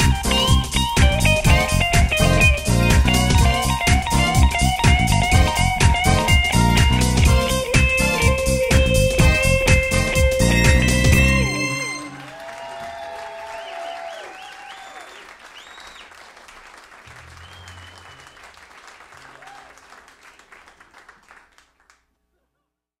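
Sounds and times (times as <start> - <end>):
audience applauding: 11.4 - 22.0
whistles: 13.5 - 16.2, 17.1 - 18.6.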